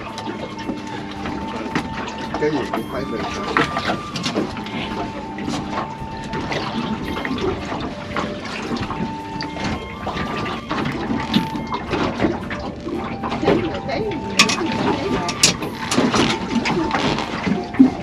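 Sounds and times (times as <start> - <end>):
water sloshing and splashing: 0.0 - 18.0.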